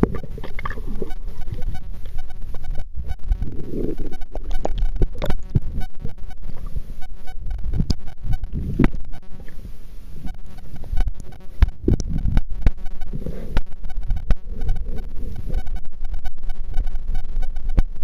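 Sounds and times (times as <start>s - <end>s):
water sloshing: 0.0s - 5.7s
muffled underwater rumble: 0.0s - 18.0s.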